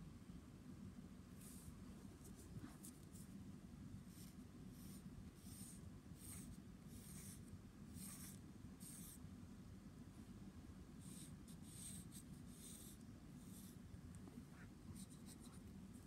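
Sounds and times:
pencil scratching on paper: 4.1 - 9.2, 11.0 - 13.8, 14.6 - 15.7.

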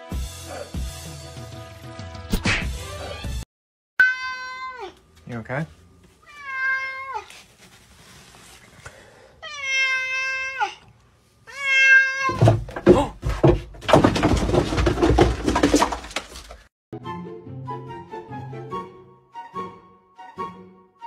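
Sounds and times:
cat meowing: 4.0 - 5.0, 6.2 - 7.3, 9.4 - 10.8, 11.5 - 12.4.

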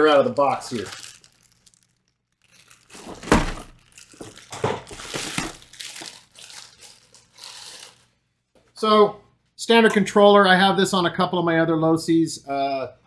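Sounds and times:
cardboard packaging rustling: 0.1 - 8.1.

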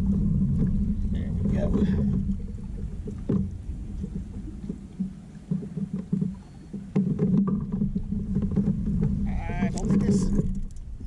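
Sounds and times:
water lapping against a hull: 0.0 - 11.0
fishing tackle clicks and knocks: 3.0 - 11.0.

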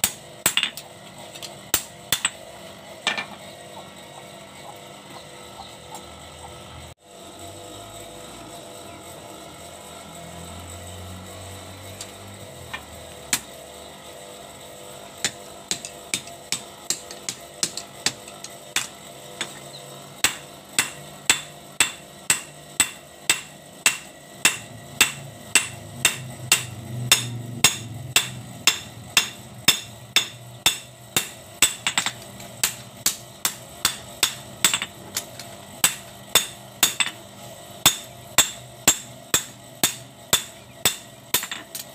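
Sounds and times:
hammer striking blade on anvil: 0.0 - 2.4, 15.2 - 35.0, 35.8 - 37.2, 37.8 - 41.9.

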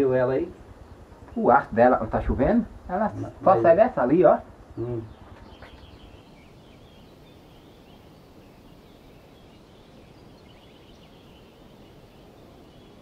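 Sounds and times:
low outdoor noise: 0.0 - 13.0
faint high bird chirps: 4.8 - 13.0.

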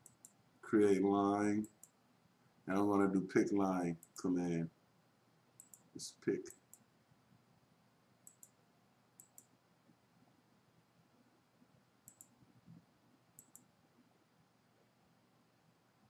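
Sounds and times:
faint computer mouse clicks: 0.0 - 0.4, 5.6 - 5.9, 6.5 - 6.9, 8.2 - 8.6, 9.2 - 9.5, 12.0 - 12.4, 13.4 - 13.7.

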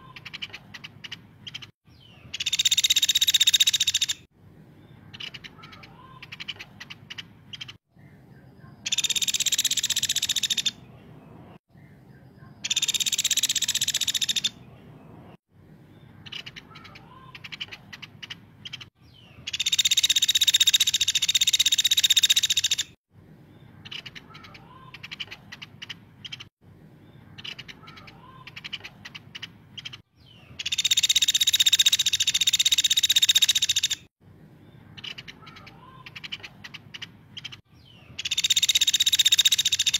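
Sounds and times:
sharp ticking bird notes: 0.0 - 4.3, 5.0 - 11.2, 11.8 - 14.8, 16.1 - 23.0, 23.8 - 26.5, 27.2 - 34.1, 34.9 - 39.9
woodpecker high-pitched trills: 2.3 - 4.3, 8.8 - 10.8, 12.6 - 14.6, 19.5 - 23.0, 30.6 - 34.1, 38.2 - 39.9.

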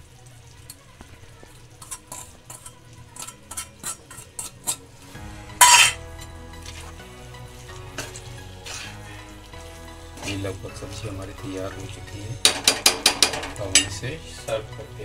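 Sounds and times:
low sizzle: 0.0 - 15.0
steel bowl tapping on metal pan: 1.8 - 4.8, 5.6 - 6.0, 12.4 - 14.0
steel spoon stirring: 1.8 - 4.9, 5.6 - 7.0
metal clatter: 12.4 - 13.9.

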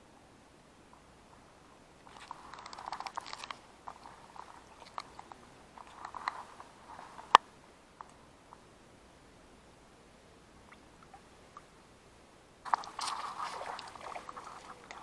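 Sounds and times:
grass rustling against camera: 2.0 - 7.5, 12.6 - 15.0.

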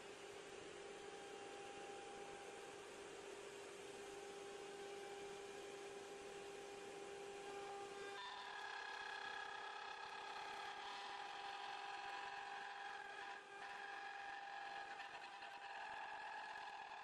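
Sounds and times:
router spindle whining: 4.1 - 17.0.

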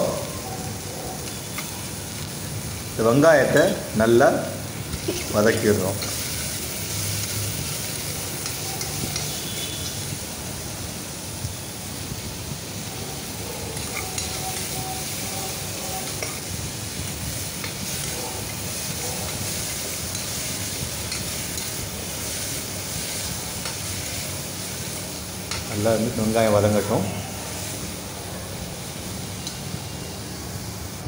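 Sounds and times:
onions sizzling: 0.0 - 31.0
metal spoon scraping pot: 13.8 - 16.5.

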